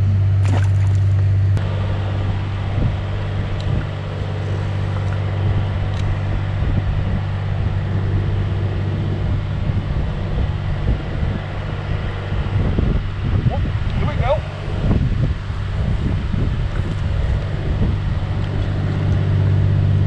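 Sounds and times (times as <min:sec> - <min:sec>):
steady low hum: 0:00.0 - 0:20.0
wind buffeting microphone: 0:00.0 - 0:20.0.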